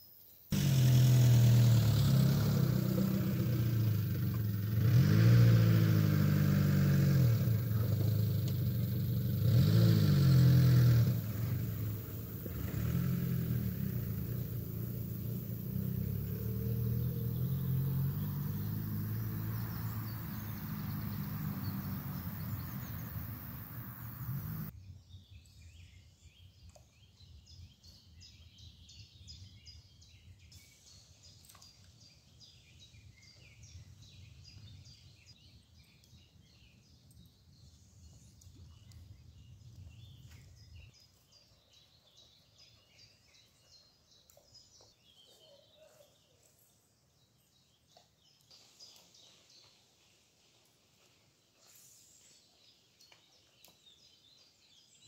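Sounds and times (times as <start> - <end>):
birds chirping: 0.5 - 24.7
car engine revving: 0.6 - 24.7.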